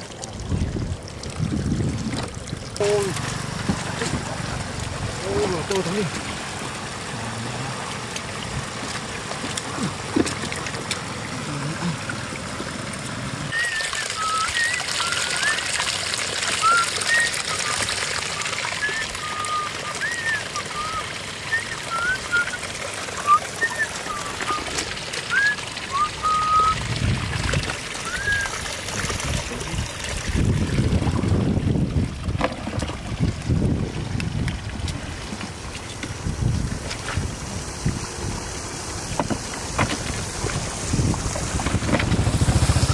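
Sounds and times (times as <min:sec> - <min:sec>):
water trickling in channel: 0:00.0 - 0:42.9
short whistled notes: 0:13.5 - 0:15.6, 0:16.6 - 0:17.8, 0:18.8 - 0:22.6, 0:23.2 - 0:24.7, 0:25.3 - 0:26.8, 0:28.0 - 0:28.5.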